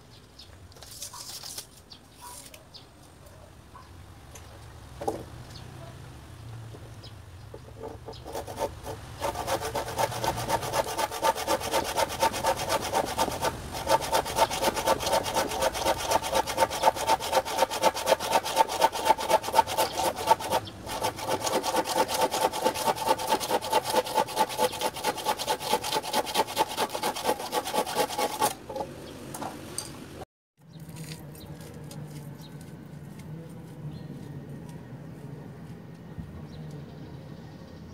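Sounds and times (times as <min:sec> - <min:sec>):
handsaw cutting wood: 0:07.7 - 0:28.9.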